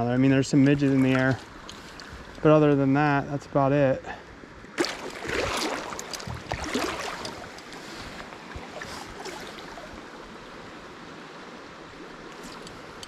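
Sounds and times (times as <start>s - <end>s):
creek current rushing: 0.3s - 3.4s, 4.8s - 13.0s
faint ticks: 12.3s - 13.0s.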